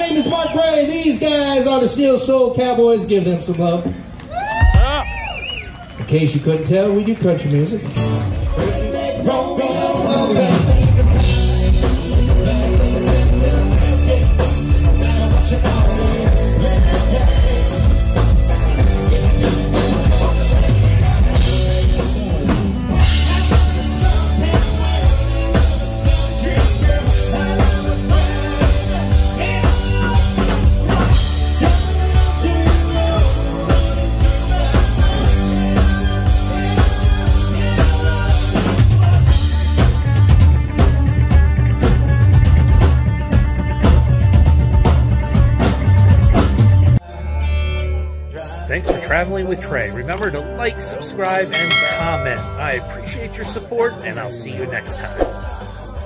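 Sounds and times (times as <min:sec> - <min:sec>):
live country band playing: 0:00.0 - 0:05.0, 0:06.0 - 0:56.0
drum kit beat: 0:08.0 - 0:47.0, 0:51.2 - 0:53.7, 0:54.7 - 0:56.0.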